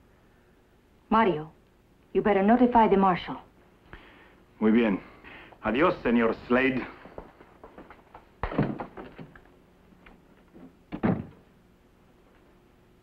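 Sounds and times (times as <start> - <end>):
door banging: 8.4 - 9.4, 10.9 - 11.5
door opening and shutting: 10.5 - 11.5.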